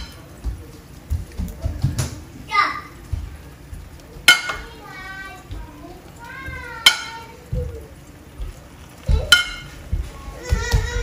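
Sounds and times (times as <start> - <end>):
metal cup clinking on pan: 4.2 - 4.6, 9.3 - 9.8.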